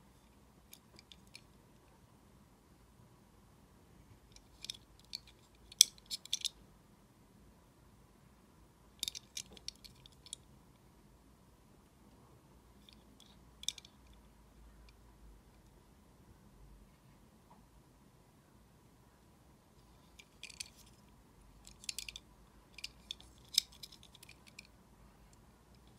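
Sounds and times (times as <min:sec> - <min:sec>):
toy car clicking and tapping: 0:04.4 - 0:06.5, 0:21.6 - 0:24.7.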